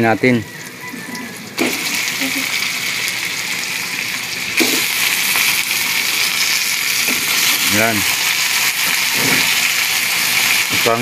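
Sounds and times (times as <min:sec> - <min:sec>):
meat sizzling in a wok: 0:00.5 - 0:11.0.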